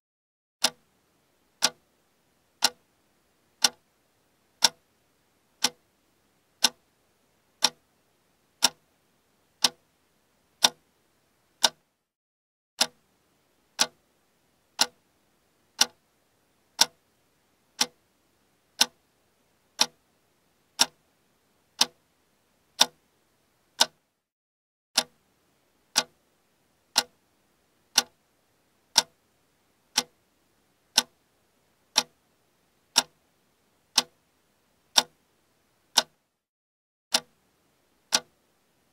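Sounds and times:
clock ticking: 0.6s - 0.9s, 1.6s - 1.8s, 2.6s - 2.9s, 3.6s - 3.8s, 4.6s - 4.8s, 5.6s - 5.8s, 6.6s - 6.9s, 7.6s - 7.9s, 8.6s - 8.8s, 9.6s - 9.8s, 10.6s - 10.8s, 11.6s - 11.9s, 12.8s - 13.0s, 13.7s - 14.0s, 14.8s - 15.0s, 15.8s - 16.0s, 16.8s - 17.0s, 17.8s - 18.0s, 18.8s - 19.0s, 19.8s - 20.0s, 20.7s - 21.0s, 21.8s - 22.0s, 22.8s - 23.0s, 23.8s - 24.1s, 25.0s - 25.2s, 25.9s - 26.2s, 26.9s - 27.2s, 27.9s - 28.2s, 28.9s - 29.2s, 29.9s - 30.2s, 30.9s - 31.2s, 31.9s - 32.2s, 32.9s - 33.2s, 33.9s - 34.2s, 34.9s - 35.2s, 35.9s - 36.2s, 37.1s - 37.4s, 38.0s - 38.4s.

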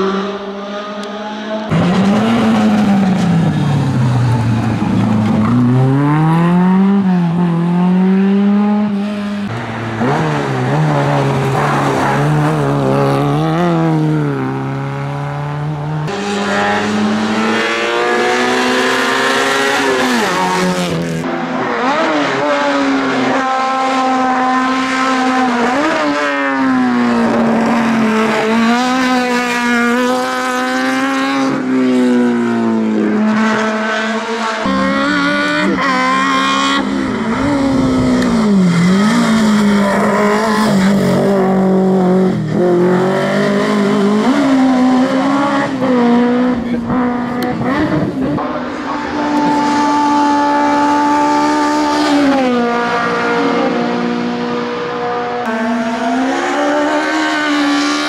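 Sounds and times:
race car engines revving: 0.0s - 58.0s.

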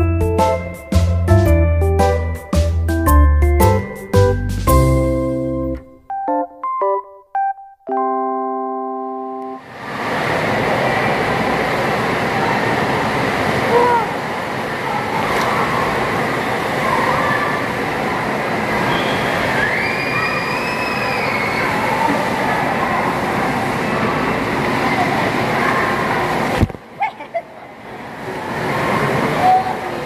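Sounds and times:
water rushing in a pool: 9.6s - 30.0s
distant voices: 9.9s - 30.0s
child's high call: 13.7s - 14.2s, 16.8s - 17.8s, 19.4s - 22.4s.

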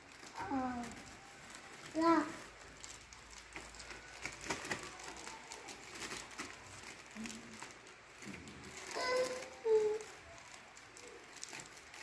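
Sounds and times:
plastic bags rustling and crinkling: 0.0s - 12.0s.

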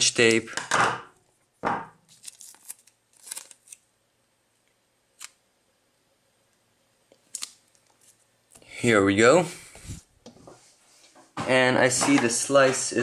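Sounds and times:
tape crackling and rubbing: 2.1s - 3.8s.

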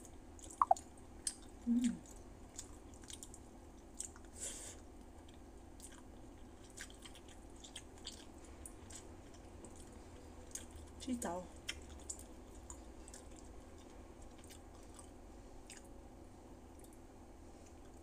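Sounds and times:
person chewing food: 0.3s - 4.3s, 5.0s - 11.0s, 11.6s - 16.0s, 16.6s - 17.0s, 17.6s - 18.0s
wet mouth clicks and smacks: 0.4s - 1.4s
person humming: 1.7s - 2.0s.

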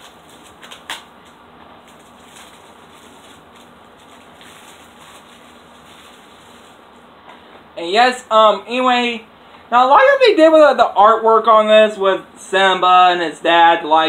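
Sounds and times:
plastic wrap scraping and rustling: 0.0s - 7.1s
faint plastic crinkling: 0.0s - 7.4s.

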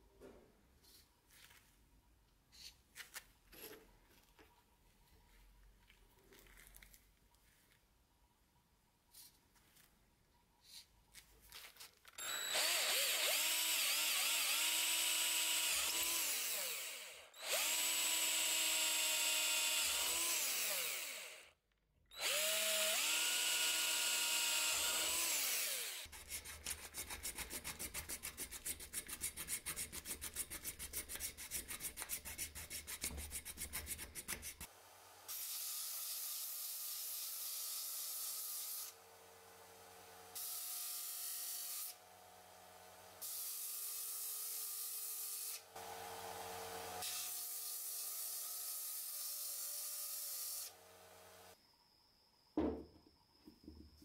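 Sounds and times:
electric drill boring wood: 12.2s - 21.5s, 22.1s - 26.1s, 34.6s - 51.6s.

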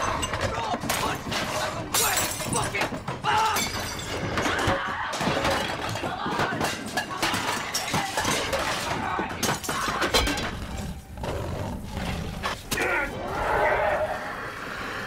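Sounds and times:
crockery and glass shattering: 0.0s - 10.6s
kitchenware clattering: 0.0s - 10.7s.

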